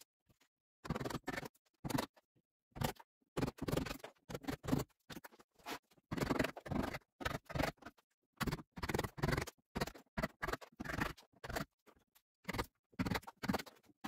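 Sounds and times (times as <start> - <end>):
chisel scraping wood: 2.8 - 11.7.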